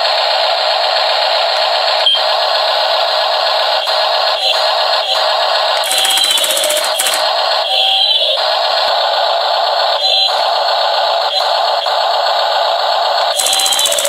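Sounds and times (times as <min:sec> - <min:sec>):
toy electronic sound effect: 0:03.7 - 0:09.0, 0:13.3 - 0:14.0
hammer rapid chattering: 0:05.8 - 0:07.4, 0:13.4 - 0:14.0.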